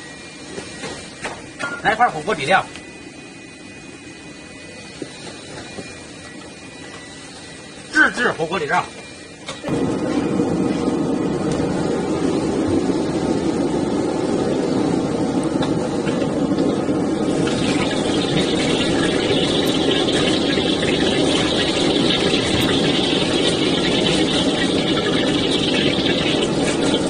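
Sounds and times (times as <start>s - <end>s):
gas burner rushing: 0.0s - 27.0s
oil sizzling in a wok: 9.2s - 27.0s.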